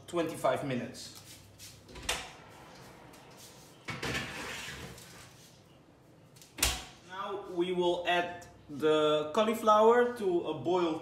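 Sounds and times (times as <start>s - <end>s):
baking tray scraping slide: 3.5s - 5.4s.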